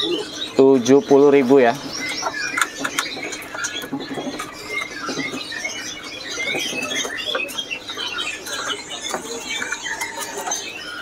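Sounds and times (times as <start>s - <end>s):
songbirds chirping and twittering: 0.0s - 11.0s.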